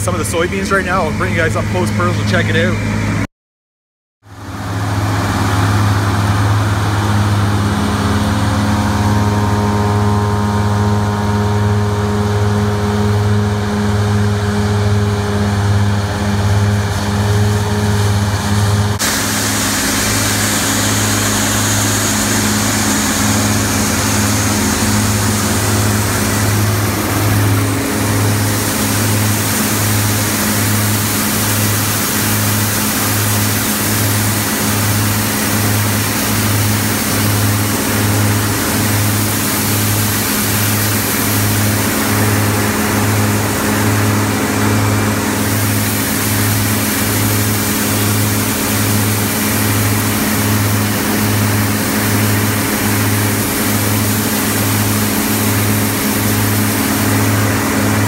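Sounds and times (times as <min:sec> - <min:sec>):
diesel engine running steadily: 0:00.0 - 0:03.3, 0:04.2 - 0:58.0.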